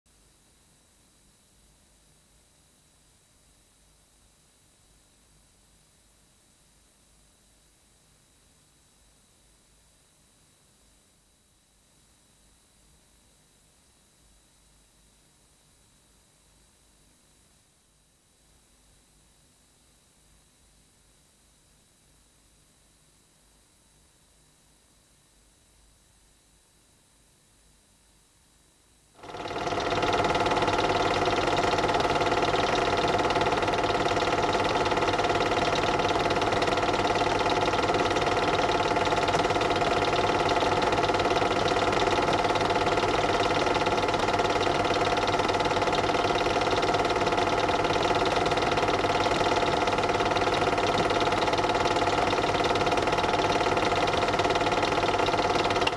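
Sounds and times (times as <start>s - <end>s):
film projector whirring: 29.2s - 55.9s.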